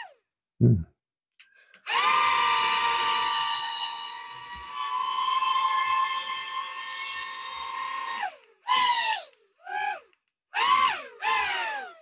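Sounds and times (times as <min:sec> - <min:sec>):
toy drone motors whining: 0:01.8 - 0:12.0.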